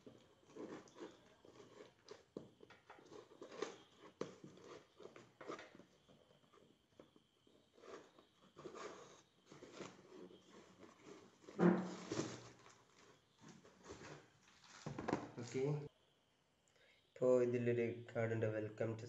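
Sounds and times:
paper and tape rustling: 0:07.8 - 0:15.8.

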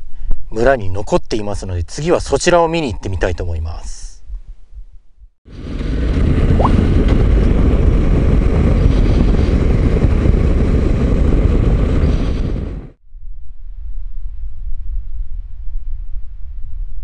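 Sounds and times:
wind rushing over microphone: 0:05.5 - 0:17.0.

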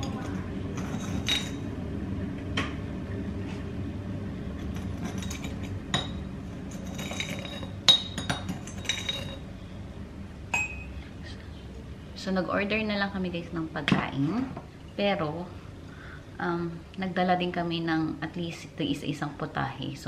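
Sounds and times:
utensils clinking on dishes: 0:00.0 - 0:01.7, 0:04.6 - 0:09.4
low hum: 0:00.0 - 0:18.4.

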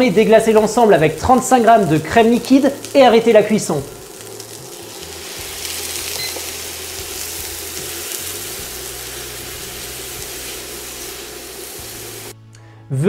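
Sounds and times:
cream sizzling in a frying pan: 0:00.0 - 0:12.4.

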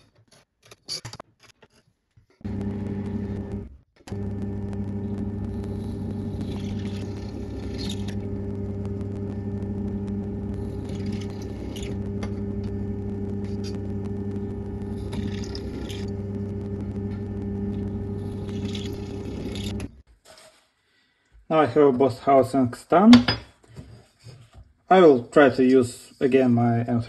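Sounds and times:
drill press motor humming: 0:02.4 - 0:20.0
drill bit cutting metal: 0:04.7 - 0:19.9.

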